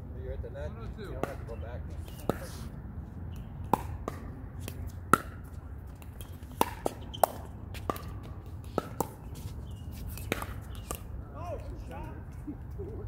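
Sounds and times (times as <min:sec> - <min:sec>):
ball bouncing on hard court: 0:01.1 - 0:01.6, 0:03.6 - 0:09.5, 0:10.2 - 0:11.0.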